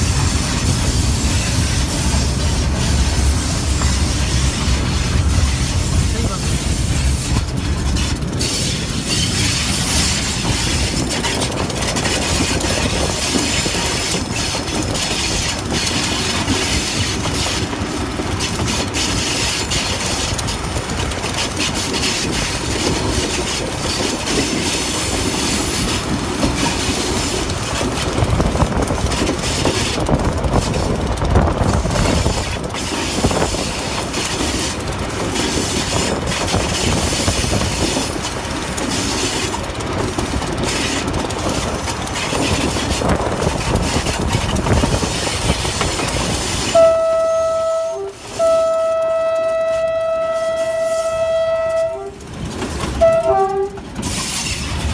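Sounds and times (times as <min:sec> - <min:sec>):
train wheels rumbling on rails: 0:00.0 - 0:54.9
wheels clattering over rail joints: 0:00.0 - 0:54.9.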